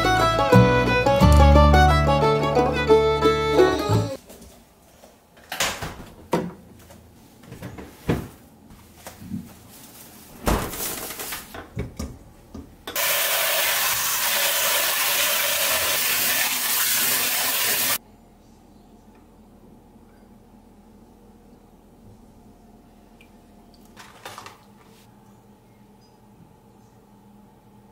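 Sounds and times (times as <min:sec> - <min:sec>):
tap water running into metal bowl: 0:13.0 - 0:18.0
kitchen things clattering: 0:24.0 - 0:24.7.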